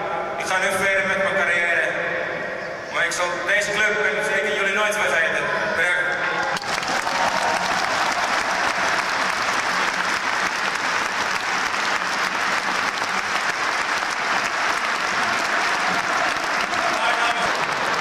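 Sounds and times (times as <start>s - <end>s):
stadium crowd applauding: 6.1s - 18.0s.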